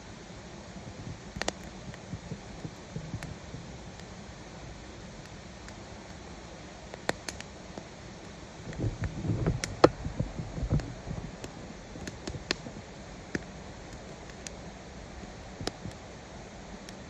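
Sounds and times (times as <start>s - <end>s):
campfire crackling: 0.0s - 17.0s
muffled low rumble: 8.4s - 17.0s.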